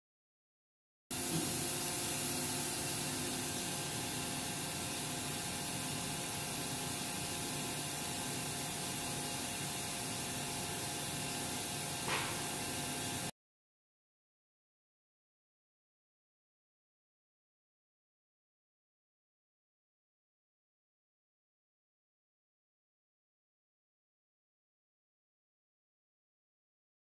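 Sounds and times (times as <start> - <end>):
machining center hiss and hum: 1.1 - 13.3.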